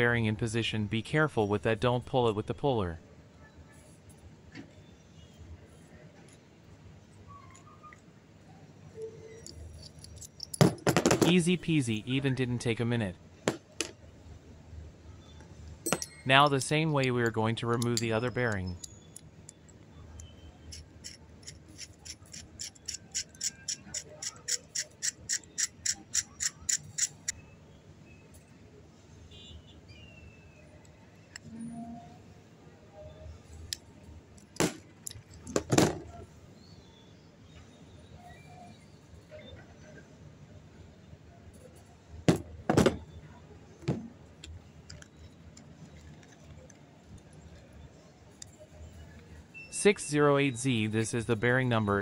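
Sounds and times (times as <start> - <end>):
metal tools clacking on plastic table: 9.4 - 11.3, 15.9 - 19.8
sharp high clicks: 17.7 - 27.4.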